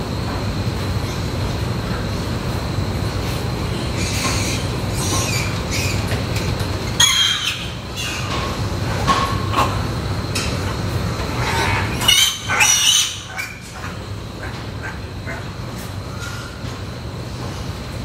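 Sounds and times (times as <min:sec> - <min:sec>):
steady low hum: 0:00.0 - 0:18.0
piglets squealing: 0:07.0 - 0:08.3, 0:11.4 - 0:13.6.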